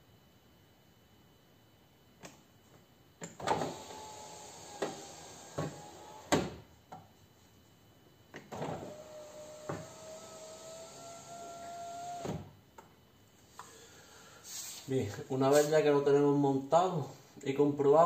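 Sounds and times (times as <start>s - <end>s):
electric window motor whining: 3.2s - 6.7s, 8.4s - 12.6s.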